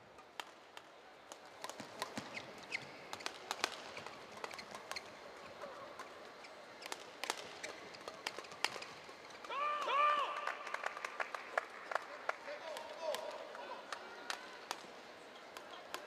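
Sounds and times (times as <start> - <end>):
shoe squeaks on court: 2.2 - 5.6
racket striking shuttlecock: 6.8 - 9.0.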